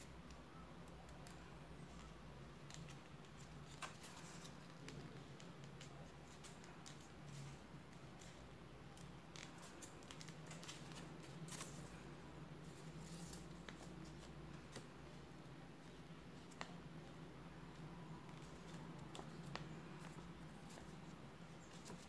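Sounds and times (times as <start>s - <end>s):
paper being folded and creased: 1.0s - 12.0s, 12.6s - 15.2s, 18.3s - 22.0s.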